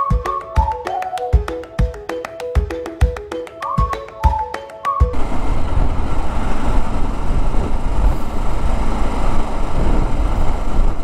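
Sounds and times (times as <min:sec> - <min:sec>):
motorcycle engine rumble: 0:05.1 - 0:11.0
wind rushing over microphone: 0:05.1 - 0:11.0.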